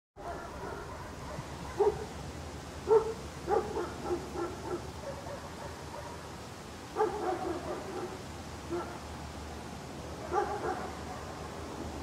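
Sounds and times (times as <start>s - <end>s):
dog barking and yipping: 0.2s - 2.1s, 2.8s - 6.3s, 7.0s - 9.0s, 10.2s - 11.4s.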